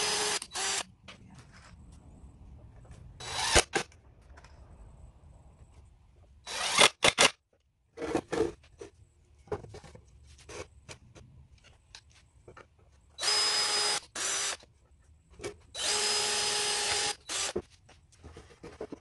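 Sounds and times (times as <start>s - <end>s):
impact driver driving screws into wood: 3.2s - 3.9s, 6.5s - 7.4s, 15.8s - 17.6s.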